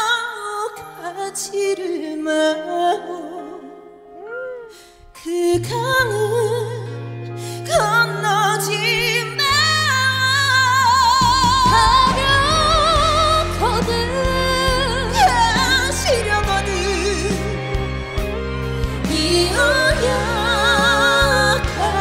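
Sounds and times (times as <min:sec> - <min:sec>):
woman singing with vibrato: 0:00.0 - 0:07.0, 0:07.6 - 0:22.0
live band accompaniment: 0:06.8 - 0:22.0.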